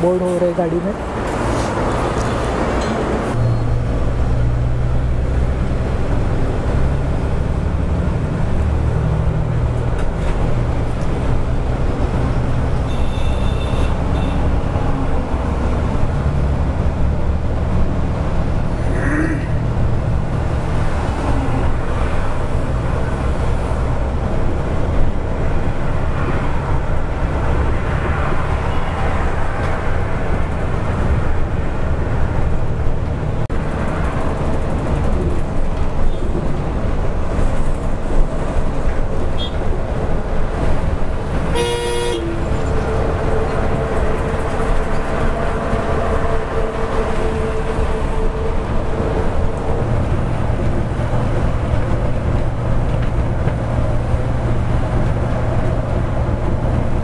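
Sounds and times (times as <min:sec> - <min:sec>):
tyre and road noise: 0:00.0 - 0:57.0.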